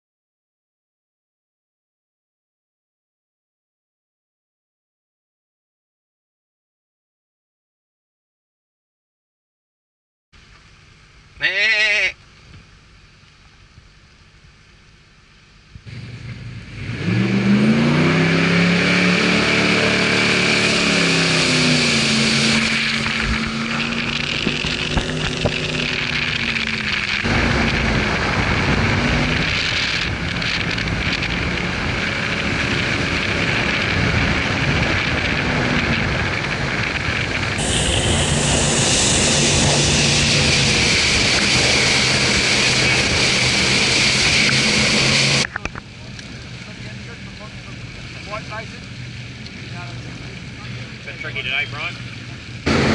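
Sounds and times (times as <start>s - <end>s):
boat engine revving: 15.5s - 52.9s
water spray rushing: 17.1s - 52.9s.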